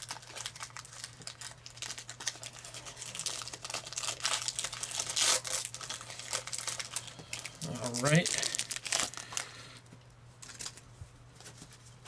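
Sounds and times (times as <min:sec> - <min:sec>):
foil wrapper crinkling: 0:00.0 - 0:09.8, 0:10.4 - 0:11.7.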